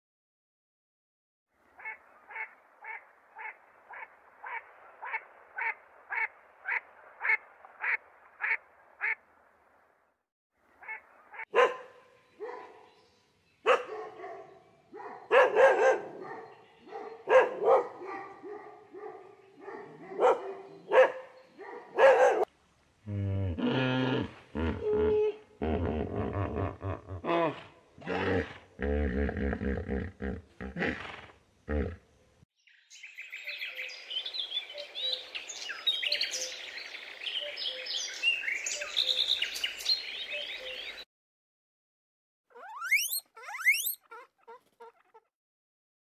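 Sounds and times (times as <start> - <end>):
animal calling: 42.5 - 45.3.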